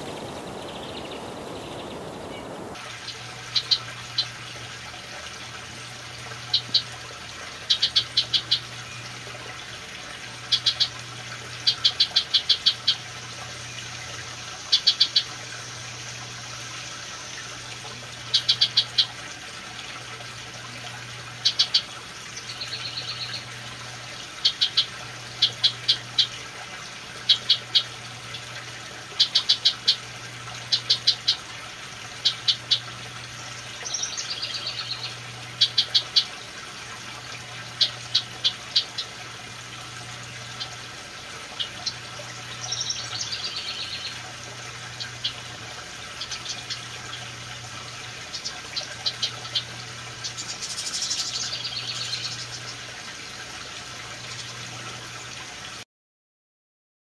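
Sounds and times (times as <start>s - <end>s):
wren chipping calls: 0.0s - 2.8s, 7.7s - 8.7s, 10.5s - 13.0s, 14.6s - 15.4s, 18.3s - 19.1s, 24.4s - 26.3s, 29.2s - 30.0s, 30.6s - 31.4s, 33.5s - 36.4s, 41.6s - 44.2s, 48.2s - 52.8s
buzzy wren call: 0.0s - 4.3s, 7.6s - 9.1s, 10.5s - 17.7s, 18.3s - 19.1s, 21.4s - 23.5s, 29.2s - 31.5s, 32.2s - 36.4s, 41.6s - 47.3s, 48.2s - 52.8s.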